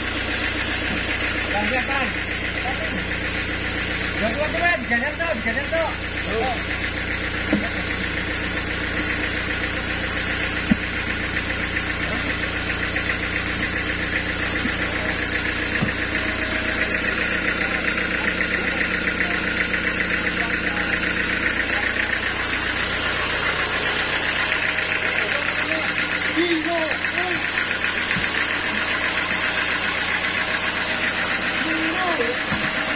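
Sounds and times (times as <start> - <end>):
engine running with knocking beat: 0.0 - 32.9
sharp knocks: 15.8 - 16.1.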